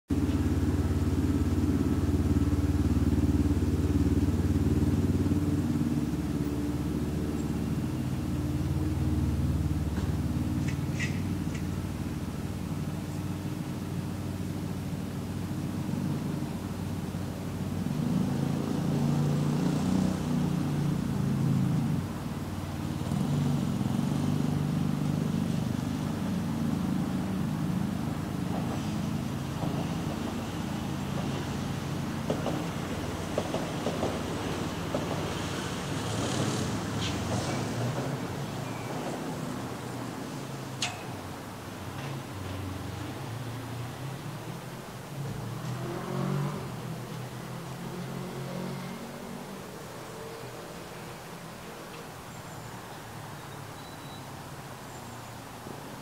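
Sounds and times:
engine running: 0.1s - 52.2s.

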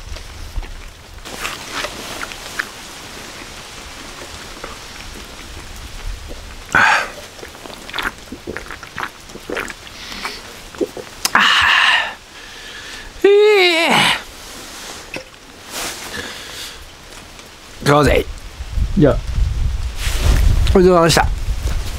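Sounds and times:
steady background hiss: 0.0s - 21.9s
man swallowing a drink: 0.5s - 12.3s, 15.1s - 15.4s
down jacket rustling: 14.3s - 16.8s.

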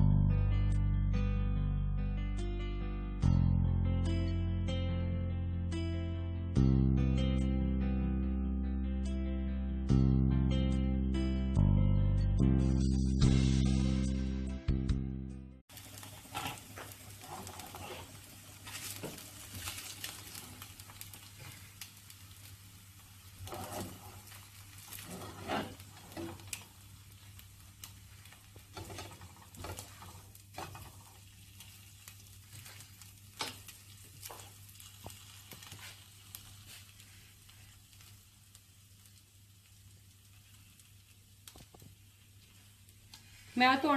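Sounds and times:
eggs sizzling in frying pan: 15.7s - 43.9s
spatula scraping and tapping pan: 16.1s - 20.6s, 23.4s - 26.7s, 28.3s - 31.8s, 32.5s - 36.0s.

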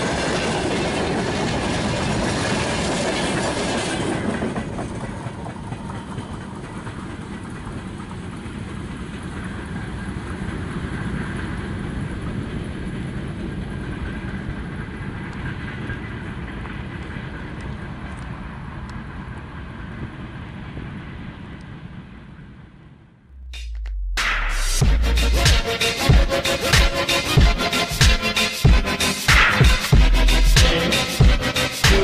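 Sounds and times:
freight wagons rolling over crossing: 0.0s - 11.3s
train low rumble: 0.0s - 32.0s.

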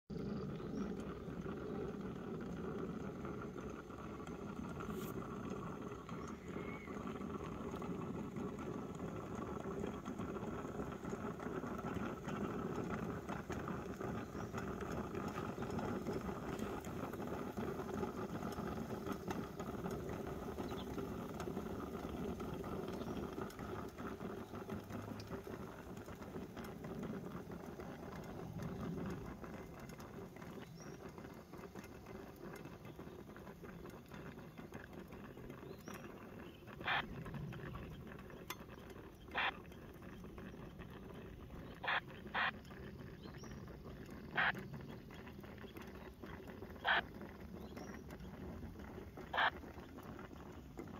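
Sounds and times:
coffee percolator bubbling: 0.1s - 50.9s.

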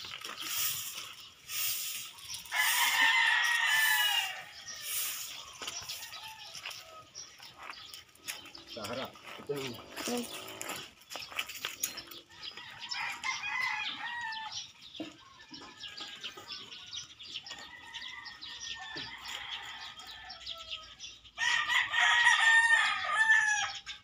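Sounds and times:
rooster crowing: 2.5s - 5.3s, 12.5s - 14.6s, 17.5s - 23.8s.

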